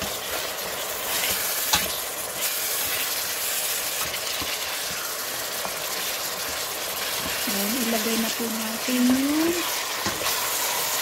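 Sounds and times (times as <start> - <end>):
chicken sizzling in a pot: 0.0 - 11.0.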